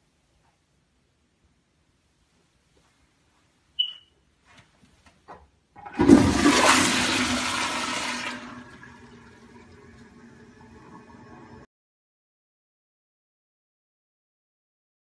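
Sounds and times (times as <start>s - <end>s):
toilet flushing: 5.8s - 11.7s
toilet refill water running: 5.8s - 11.7s.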